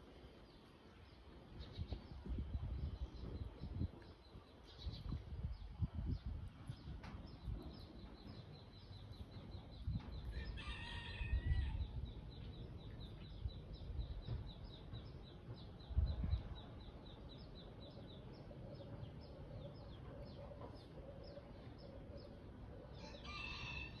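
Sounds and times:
rooster crowing: 0:10.3 - 0:11.8, 0:23.0 - 0:24.0
low rumble: 0:11.3 - 0:22.9.

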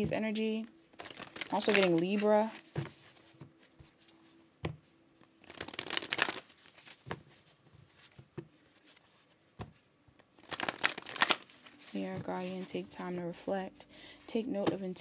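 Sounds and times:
cards riffling: 0:01.0 - 0:03.0, 0:05.4 - 0:07.2, 0:10.4 - 0:11.7.

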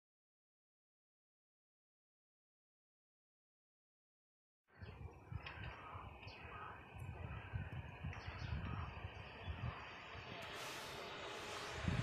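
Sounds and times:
faint bird chirps: 0:04.7 - 0:11.1
wind buffeting microphone: 0:04.7 - 0:12.0.

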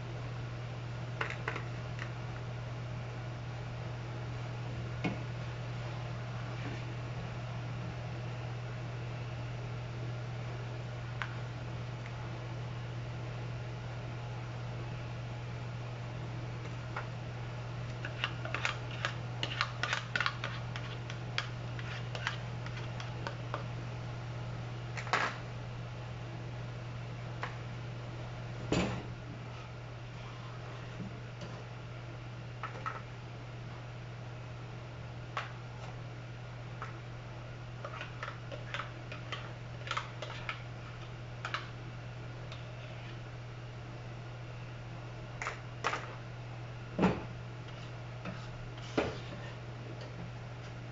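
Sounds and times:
steady low hum: 0:00.0 - 0:50.9
spoon scraping plastic cup: 0:18.0 - 0:23.3.

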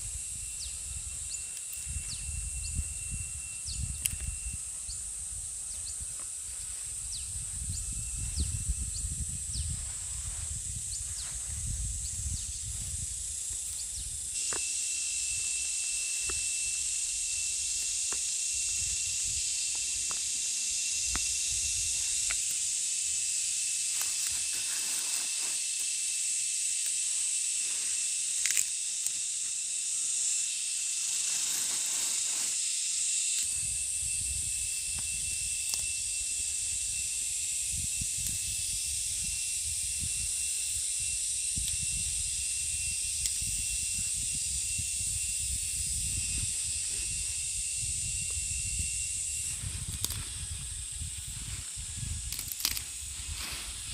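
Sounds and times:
low wind rumble: 0:00.0 - 0:14.4, 0:41.6 - 0:53.9
insect chorus drone: 0:00.0 - 0:53.9.

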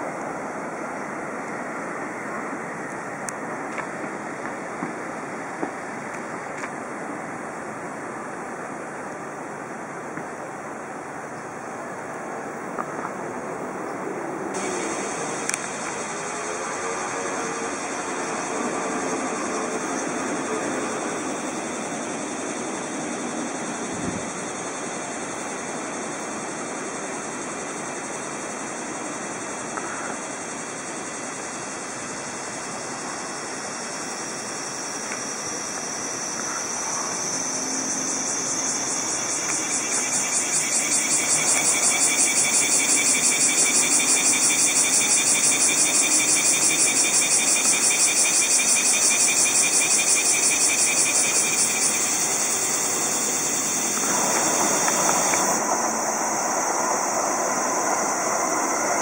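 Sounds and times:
cicadas buzzing: 0:00.0 - 0:59.0
steady background hiss: 0:00.0 - 0:59.0.

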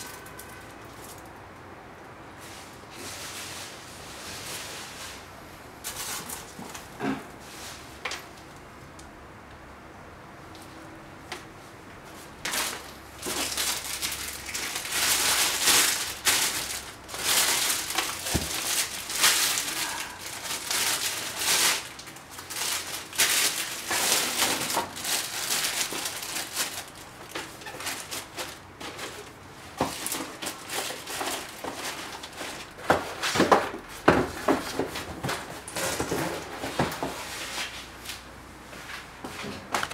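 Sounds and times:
plastic bag crinkling: 0:12.5 - 0:33.8.

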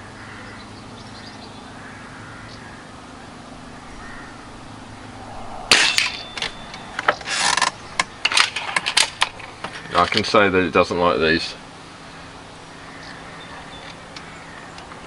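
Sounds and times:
air rifle shot: 0:05.4 - 0:06.6.

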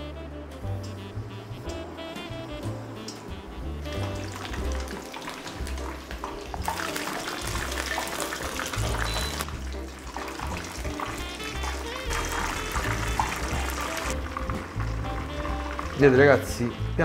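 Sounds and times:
music with deep beat: 0:00.4 - 0:16.1
fish frying in hot oil: 0:00.7 - 0:17.0.

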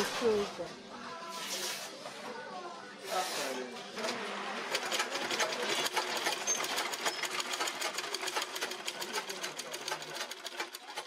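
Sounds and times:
sewing machine stitching: 0:04.0 - 0:11.0.

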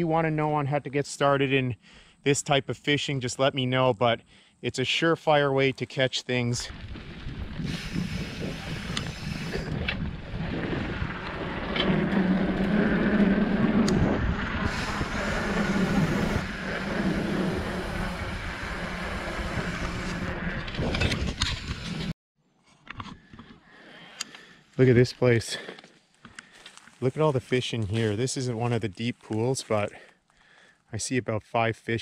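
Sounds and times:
bike tyres rumbling: 0:06.6 - 0:22.1
wind rushing over microphone: 0:06.7 - 0:22.1.

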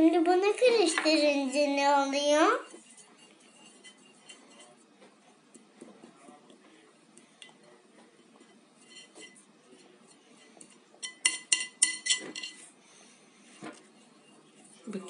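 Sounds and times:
utensil scraping a plate: 0:00.6 - 0:05.7, 0:07.6 - 0:15.0
utensil clinking on ceramic plate: 0:02.5 - 0:04.8, 0:07.4 - 0:12.7.

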